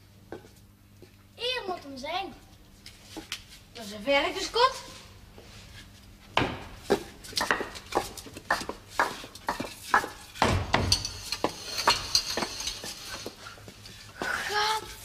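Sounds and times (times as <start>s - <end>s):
heavy thump: 10.4s - 11.1s.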